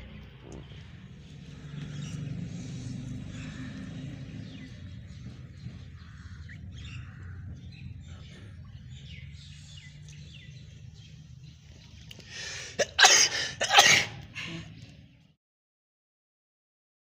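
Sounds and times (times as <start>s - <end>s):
breathy intake: 12.3s - 14.8s
person sneezing: 12.8s - 14.7s.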